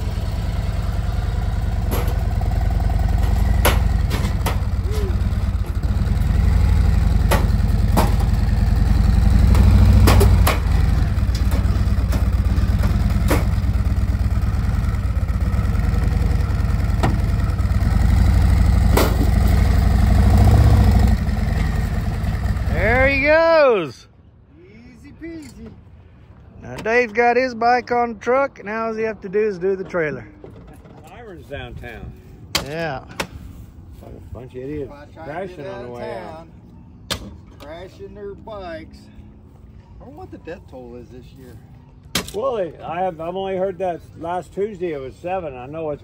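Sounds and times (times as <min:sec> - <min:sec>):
motorcycle engine revving: 0:00.0 - 0:23.2
metal clanks: 0:01.4 - 0:13.9.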